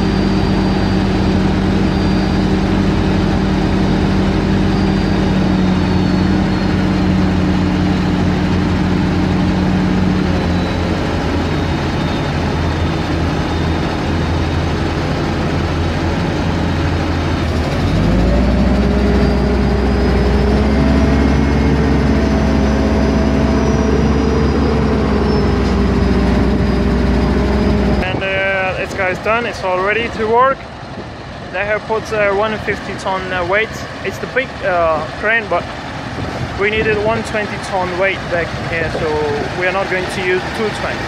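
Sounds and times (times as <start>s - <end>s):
diesel engine running: 0.0s - 41.0s.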